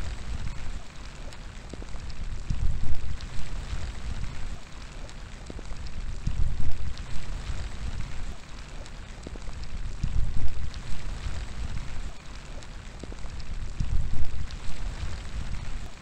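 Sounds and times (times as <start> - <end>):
rain falling: 0.0 - 16.0
raindrop hits: 0.0 - 16.0
wind gusts against microphone: 1.6 - 4.6, 9.3 - 12.2, 13.0 - 16.0.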